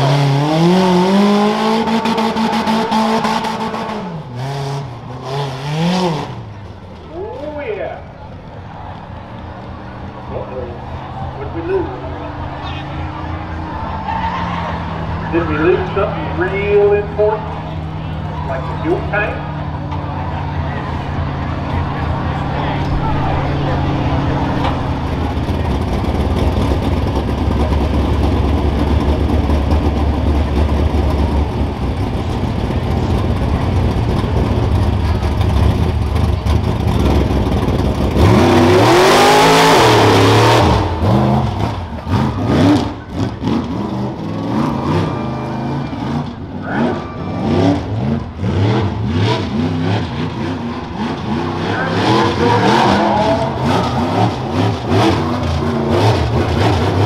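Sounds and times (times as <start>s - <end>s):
truck engine revving: 0.0s - 57.0s.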